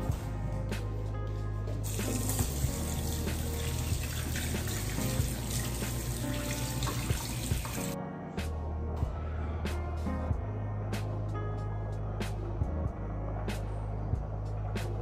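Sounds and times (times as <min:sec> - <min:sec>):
background music with bass: 0:00.0 - 0:15.0
water running from a tap: 0:01.8 - 0:08.0.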